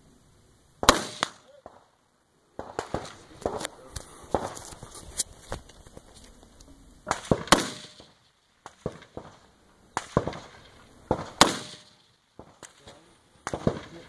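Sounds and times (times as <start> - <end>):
gunshots with echo: 0.8 - 1.8, 7.1 - 9.4, 10.0 - 14.0.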